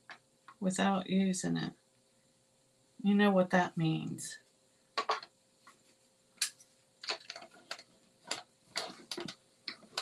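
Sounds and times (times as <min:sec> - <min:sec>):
plastic plates clicking and clacking: 0:07.0 - 0:10.0.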